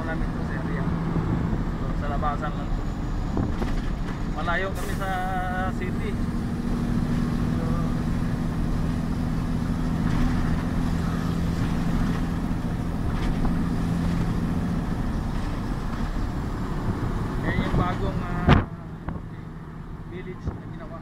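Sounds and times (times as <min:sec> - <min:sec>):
diesel engine drone: 0:00.0 - 0:21.0
road noise: 0:00.0 - 0:21.0.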